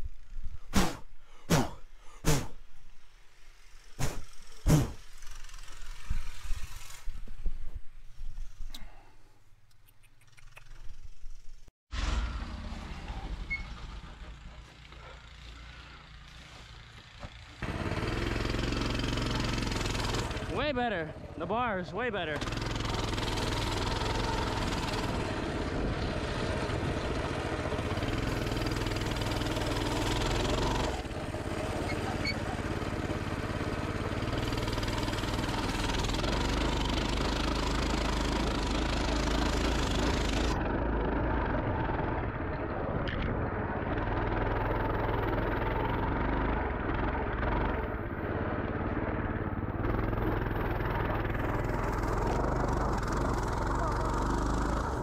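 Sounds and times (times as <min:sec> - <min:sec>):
hiss: 0:03.9 - 0:05.2
motorbike engine running: 0:13.1 - 0:55.0.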